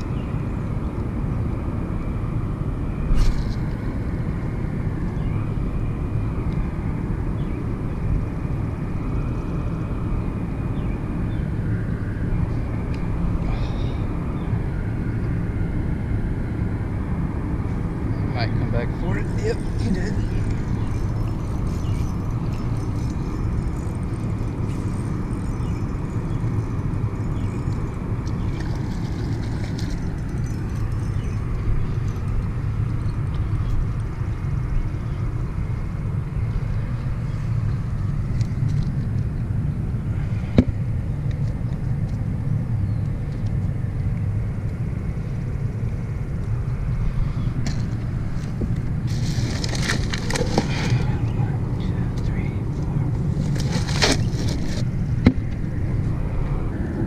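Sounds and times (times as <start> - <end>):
wind buffeting microphone: 0.0 - 57.0
bag of ice crinkling: 49.1 - 51.0.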